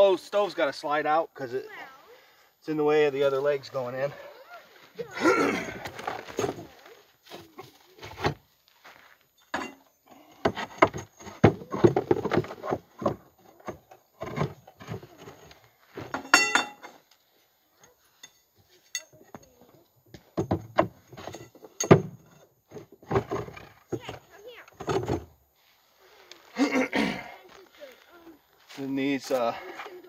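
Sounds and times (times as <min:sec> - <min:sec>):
metal legs knocking against wooden box: 0:10.4 - 0:16.8, 0:20.1 - 0:25.3
ringing metal clink: 0:16.2 - 0:16.9, 0:17.8 - 0:19.6.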